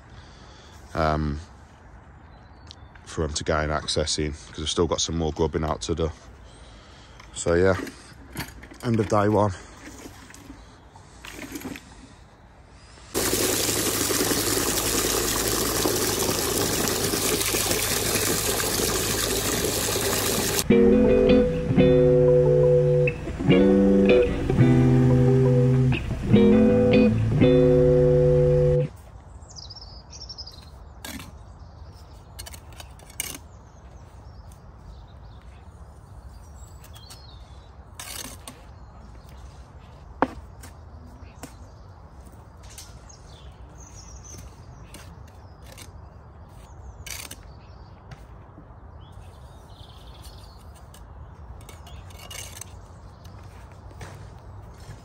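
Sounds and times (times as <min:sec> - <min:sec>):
small birds chirping: 0:02.2 - 0:08.2, 0:29.1 - 0:55.0.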